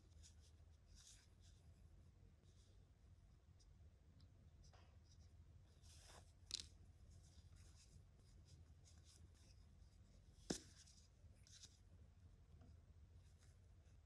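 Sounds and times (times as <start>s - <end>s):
fingers rustling yarn: 0.0s - 2.8s, 4.6s - 14.0s.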